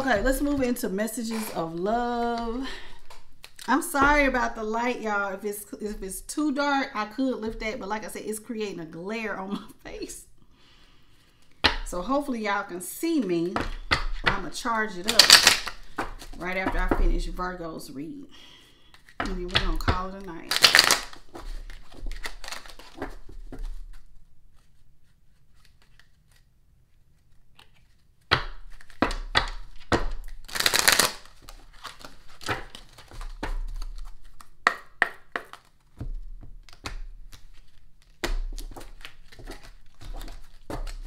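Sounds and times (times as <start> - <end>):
cards being shuffled: 1.3 - 4.3, 13.4 - 17.0, 18.8 - 41.0.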